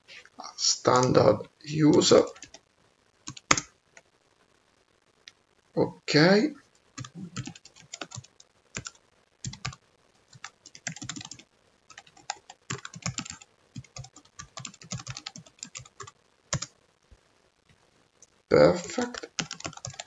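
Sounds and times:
typing on computer keyboard: 2.2s - 2.6s, 3.3s - 3.7s, 7.0s - 16.7s, 19.0s - 20.0s.

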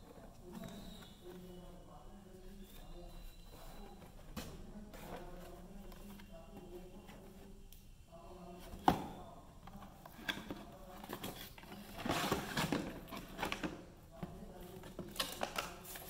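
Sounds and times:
cardboard rustling and scraping: 2.4s - 7.5s, 9.8s - 13.8s
plastic clatter: 9.8s - 16.0s.

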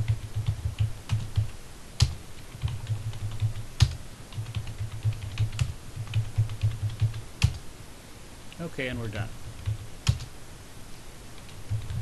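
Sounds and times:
typing on computer keyboard: 0.0s - 7.6s, 9.6s - 10.3s, 11.4s - 12.0s.

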